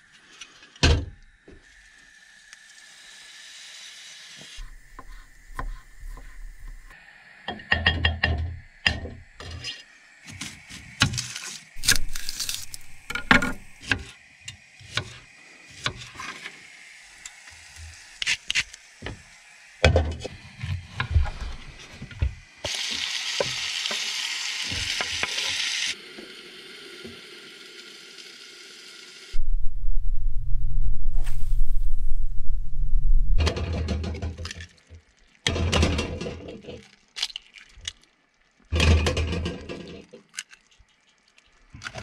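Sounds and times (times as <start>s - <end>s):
food sizzling: 1.6s - 7.0s, 9.5s - 29.4s.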